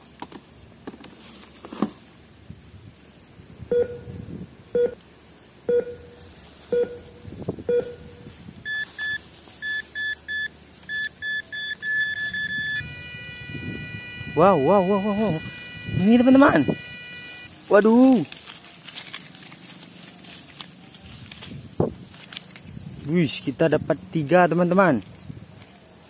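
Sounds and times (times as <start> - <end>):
toy metal detector beeping: 8.7 - 17.5.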